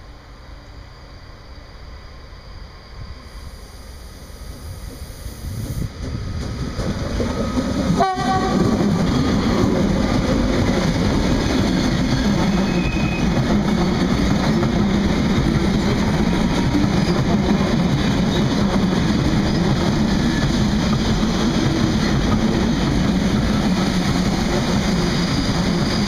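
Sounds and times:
electric locomotives passing: 0:00.0 - 0:26.0
wagons rumbling on rails: 0:05.8 - 0:26.0.

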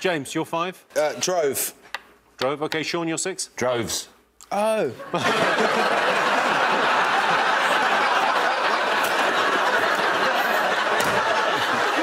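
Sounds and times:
studio audience laughing: 0:05.0 - 0:12.0.

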